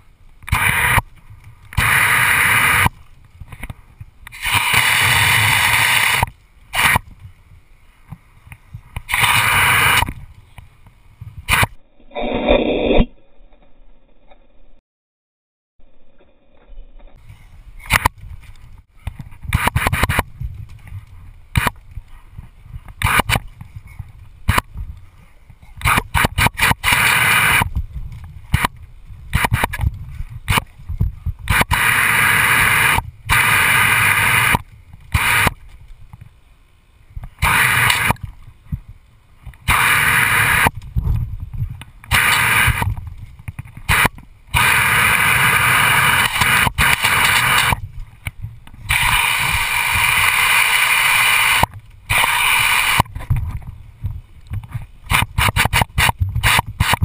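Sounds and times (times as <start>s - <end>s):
sharp clicks and knocks: 53.0s - 57.0s.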